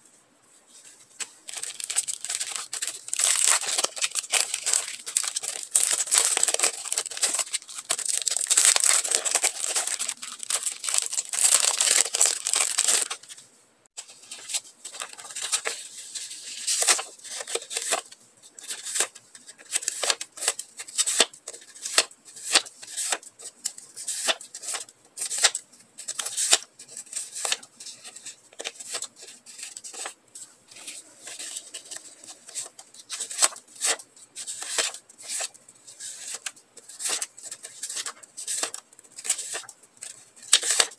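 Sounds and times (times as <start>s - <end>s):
plastic packet crinkling: 1.5s - 13.4s.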